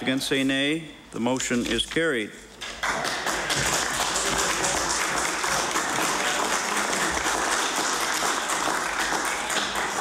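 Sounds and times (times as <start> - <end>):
crowd applauding: 2.8 - 10.0.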